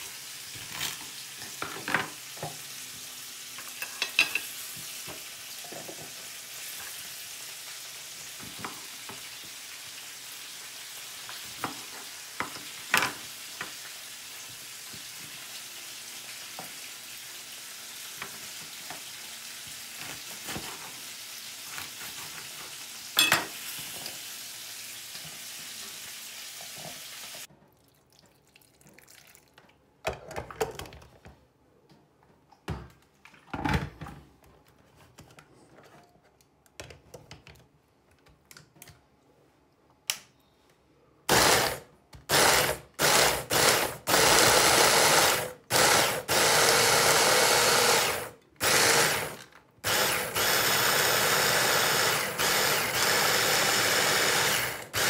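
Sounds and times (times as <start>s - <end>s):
electric hand blender chopping: 41.3s - 55.0s.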